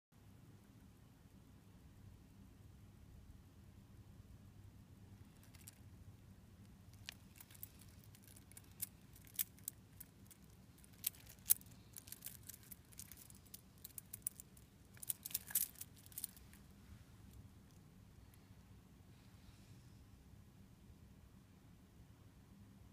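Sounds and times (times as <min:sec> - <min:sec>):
metal watch bracelet clinking: 0:06.9 - 0:16.6.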